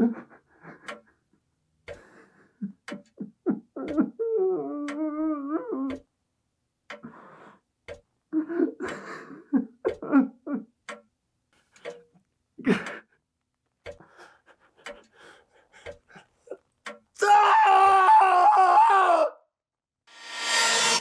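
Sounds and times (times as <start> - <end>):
man screaming: 17.2 - 19.5.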